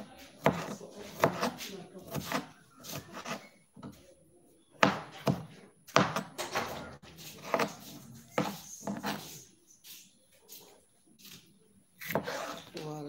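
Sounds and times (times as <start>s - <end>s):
knife chopping on cutting board: 0.0s - 3.4s, 4.8s - 9.3s, 12.0s - 12.6s.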